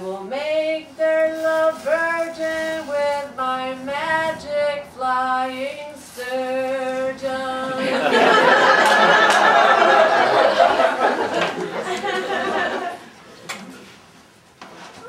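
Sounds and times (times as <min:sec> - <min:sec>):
woman singing wordless tune: 0:00.0 - 0:08.1.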